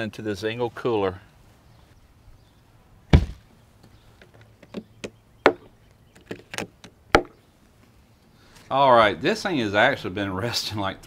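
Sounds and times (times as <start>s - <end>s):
plastic cooler lid thud: 3.1s - 3.4s.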